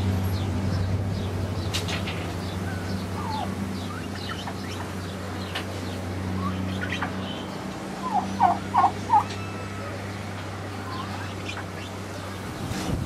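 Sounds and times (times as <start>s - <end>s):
small birds chirping: 0.0s - 12.9s
hen clucking: 1.8s - 12.0s.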